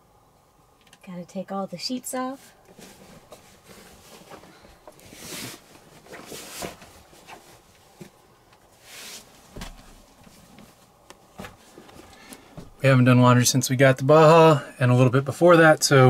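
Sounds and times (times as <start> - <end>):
bedding rustling: 2.2 - 12.8.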